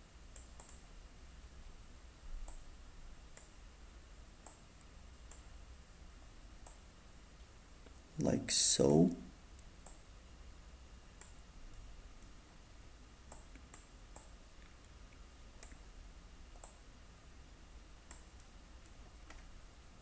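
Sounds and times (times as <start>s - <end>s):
low steady hum: 0.0s - 20.0s
faint computer mouse clicks: 0.3s - 0.9s, 2.4s - 2.7s, 3.3s - 3.6s, 4.4s - 5.5s, 6.6s - 6.8s, 9.5s - 10.0s, 11.2s - 12.3s, 13.3s - 15.8s, 16.5s - 16.8s, 18.0s - 19.5s.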